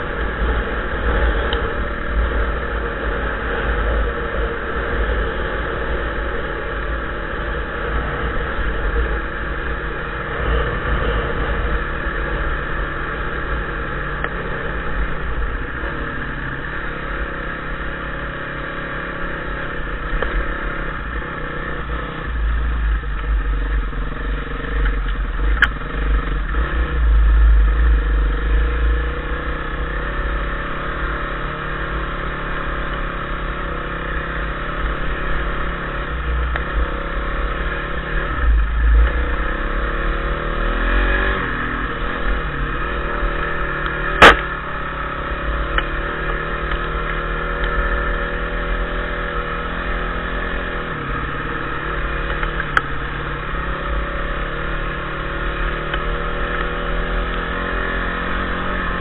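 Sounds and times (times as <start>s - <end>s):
dirt bike engine running: 0.0s - 59.0s.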